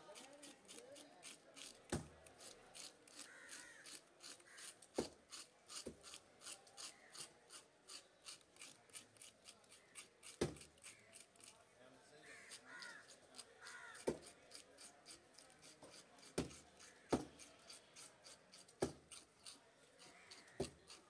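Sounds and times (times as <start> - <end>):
fish scaler scraping scales: 0.0 - 11.6, 12.4 - 21.0
tool knocking on chopping block: 16.4 - 17.3.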